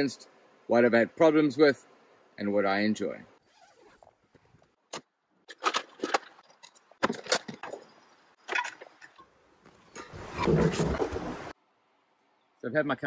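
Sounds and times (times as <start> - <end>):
camping gear knocking and clattering: 3.6 - 11.5.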